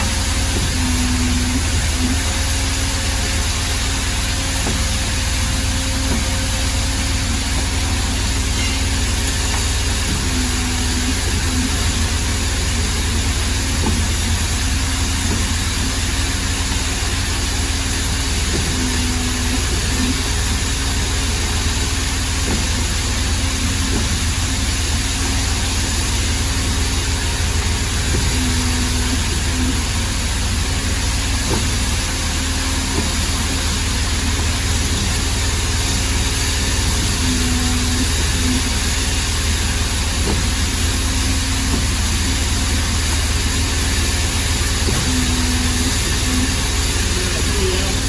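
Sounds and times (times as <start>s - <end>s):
mid-pitched machine tone: 0.0s - 17.3s, 26.3s - 30.4s, 36.6s - 39.9s, 44.2s - 48.0s
machine hum with drone: 0.0s - 48.0s.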